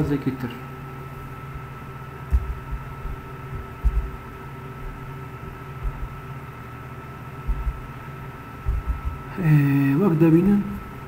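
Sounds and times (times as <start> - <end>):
background hum: 0.0 - 11.0
faint high whine: 0.0 - 11.0
dull low thumps: 2.2 - 5.1, 5.8 - 6.3, 7.4 - 9.3.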